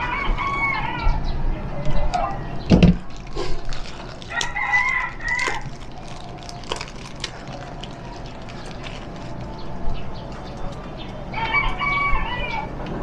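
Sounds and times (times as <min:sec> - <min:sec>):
rooster crowing: 0:00.0 - 0:01.3, 0:04.3 - 0:05.7, 0:11.3 - 0:12.8.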